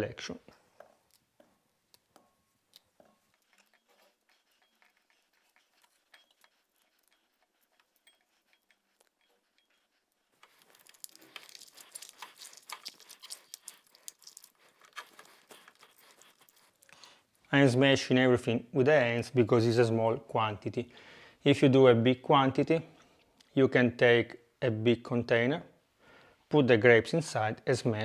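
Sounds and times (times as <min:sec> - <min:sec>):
grapes squelching by hand: 0:10.3 - 0:17.0.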